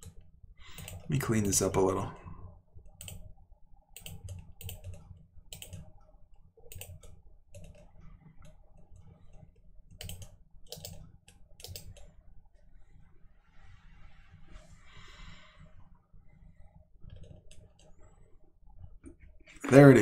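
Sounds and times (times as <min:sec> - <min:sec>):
computer mouse buttons clicking: 0:00.0 - 0:01.6, 0:02.9 - 0:03.2, 0:04.0 - 0:05.9, 0:06.7 - 0:12.1, 0:17.0 - 0:17.9.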